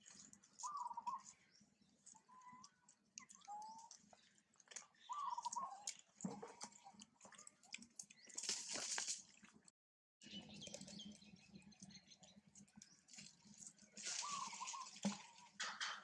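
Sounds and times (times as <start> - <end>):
chewing clicks: 2.0 - 8.4.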